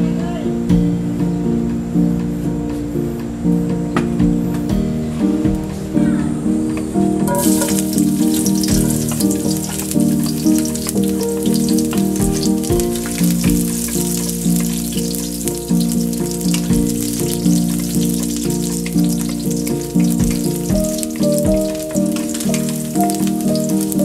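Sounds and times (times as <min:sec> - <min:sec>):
background music of sustained notes: 0:00.0 - 0:24.0
garlic sizzling in oil: 0:07.2 - 0:24.0.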